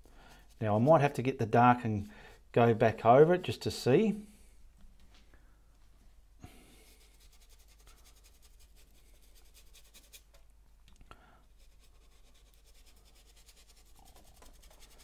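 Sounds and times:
paintbrush strokes on canvas: 6.8s - 10.3s, 11.6s - 15.0s.

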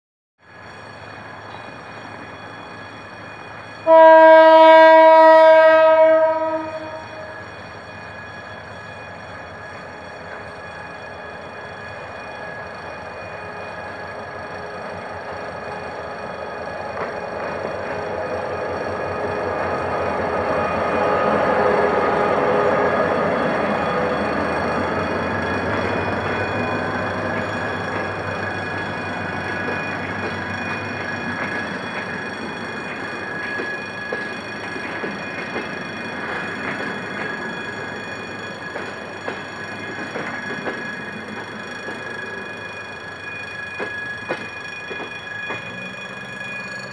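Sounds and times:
train running: 0.4s - 46.9s
locomotive horn long note: 3.8s - 7.3s
faint clicks at rail joints: 16.9s - 18.1s
thin wheel squeal: 25.3s - 46.9s.

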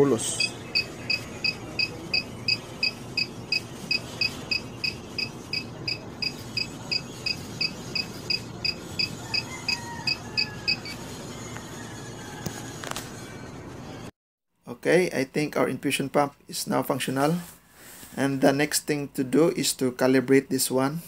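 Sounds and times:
infusion pump short high beeps: 0.3s - 9.4s.

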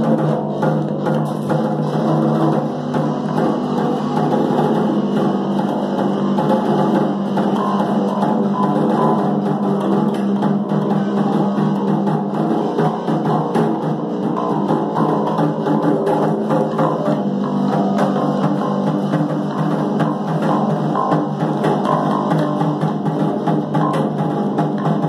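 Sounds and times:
live band playing instrumental: 0.0s - 25.0s.

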